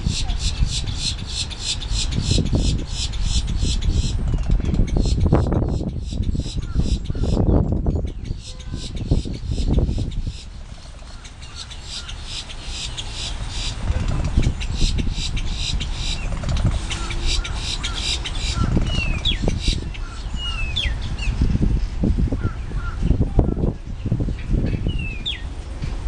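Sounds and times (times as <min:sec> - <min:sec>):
grackles calling harsh notes: 0:04.8 - 0:21.0.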